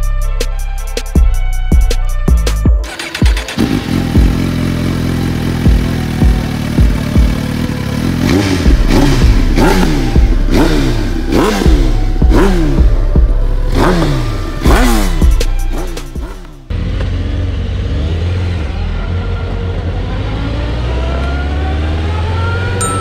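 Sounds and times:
background music: 0.0s - 16.7s
motorcycle engine revving: 2.8s - 23.0s.

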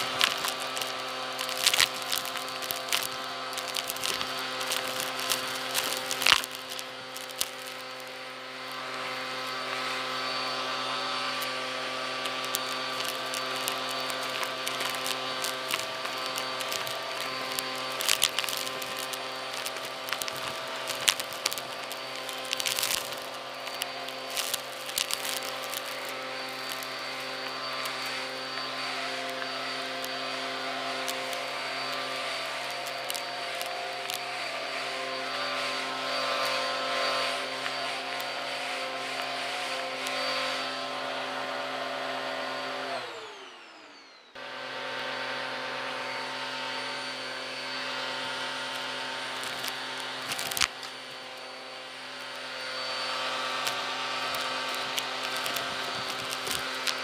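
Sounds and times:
debris rattling up hose: 0.0s - 38.4s, 48.6s - 51.4s, 52.0s - 57.0s
vacuum cleaner motor running: 0.0s - 57.0s.

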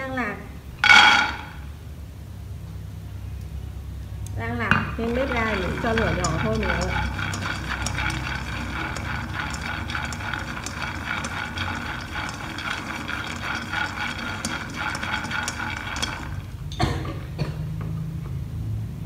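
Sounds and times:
peanuts rattling in a wok: 4.9s - 16.8s.

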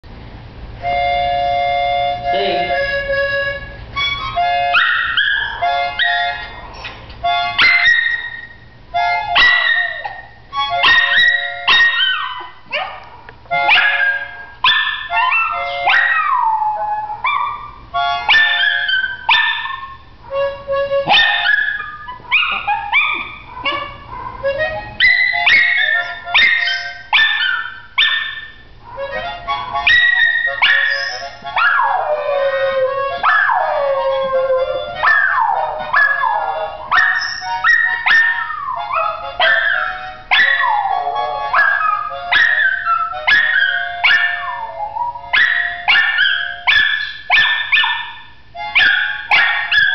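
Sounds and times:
harmonica chords: 0.1s - 12.8s, 13.4s - 49.9s
dog howling: 9.4s - 13.1s, 13.7s - 20.0s, 21.1s - 29.2s, 29.8s - 48.2s.

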